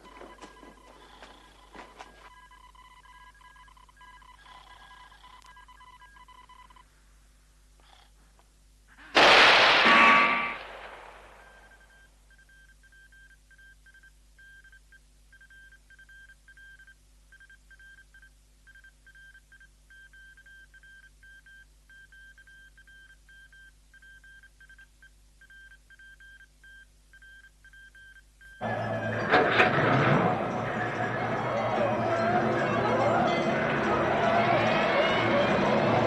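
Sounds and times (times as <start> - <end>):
faint high electronic beeping: 9.9 - 29.6.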